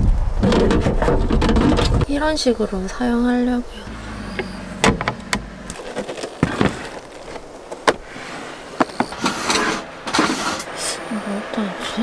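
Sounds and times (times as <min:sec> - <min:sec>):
knocks and clicks of objects handled: 0:00.4 - 0:02.1.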